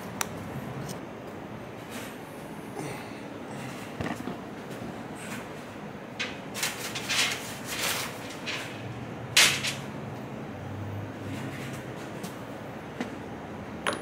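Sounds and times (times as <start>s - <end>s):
rustling and clattering parts: 3.7s - 9.9s.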